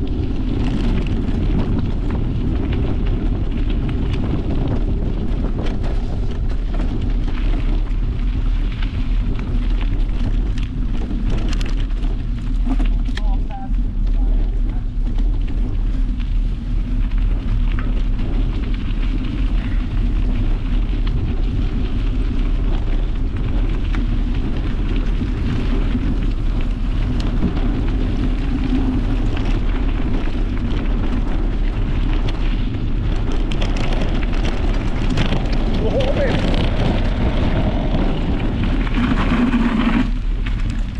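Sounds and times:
bicycle tyres crunching gravel: 0.0s - 40.9s
wind rumble on microphone: 0.0s - 40.9s.

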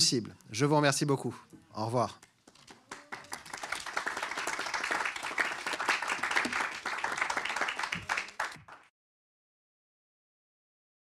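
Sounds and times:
group clapping: 2.0s - 8.9s.

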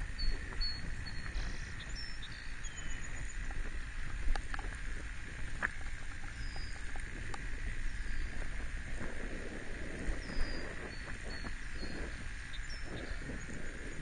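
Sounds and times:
wind rumble on microphone: 0.0s - 14.0s
sharp clicks and ticks: 3.4s - 7.6s.

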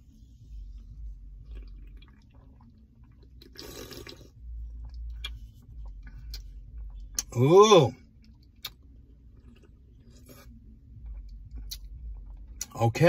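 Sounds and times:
faint low rumble: 0.0s - 13.0s
person drinking from a can: 3.4s - 4.4s.

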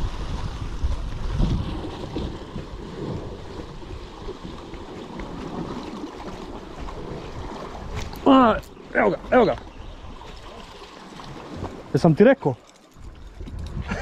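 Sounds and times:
waves washing against rocks: 0.0s - 9.5s
wind buffeting microphone: 0.0s - 10.6s, 13.0s - 14.0s.

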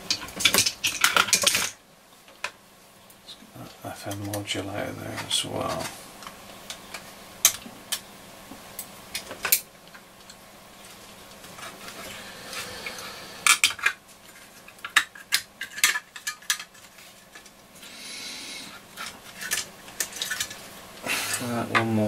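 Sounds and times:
small metal parts clicking: 0.0s - 1.8s.

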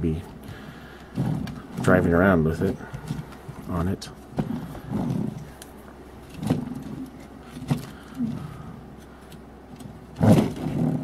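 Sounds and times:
short low vocal sound: 8.0s - 8.8s.

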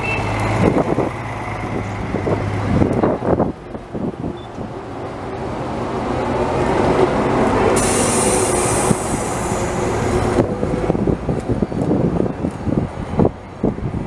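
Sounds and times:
bus passing by: 0.0s - 14.0s
short hiss: 7.8s - 9.6s.

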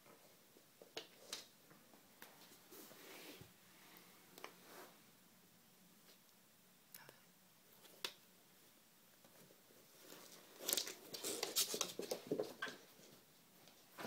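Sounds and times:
kittens scrabbling paws and claws: 10.0s - 13.2s.

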